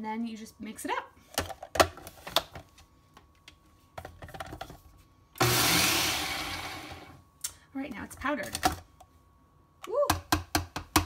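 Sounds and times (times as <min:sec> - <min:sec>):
food processor blade whirring: 0:05.4 - 0:07.2.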